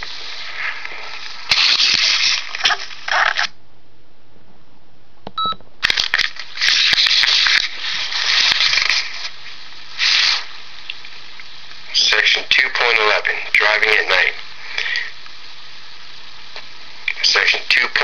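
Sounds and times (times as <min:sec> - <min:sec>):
paper rustling: 0:00.0 - 0:03.5, 0:05.8 - 0:10.6.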